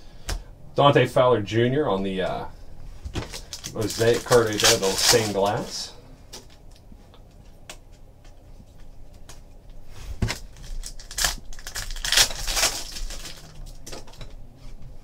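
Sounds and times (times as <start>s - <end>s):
foil wrapper crinkling: 3.2s - 5.9s, 10.2s - 14.1s.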